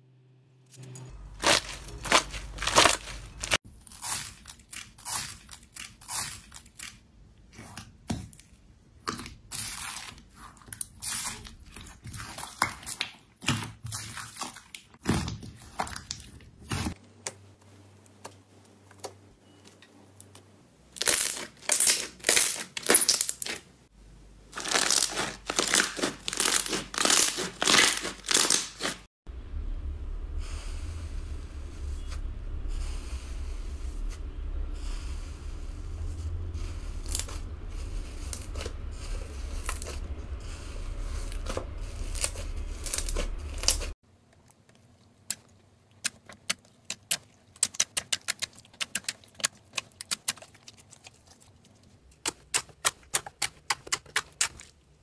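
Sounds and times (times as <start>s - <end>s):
plastic film crinkling: 1.4s - 7.0s, 24.6s - 29.1s
sticky slime crackling and popping: 24.6s - 29.0s, 41.3s - 43.9s, 45.2s - 54.8s
hand stroking fluffy slime: 34.8s - 43.7s.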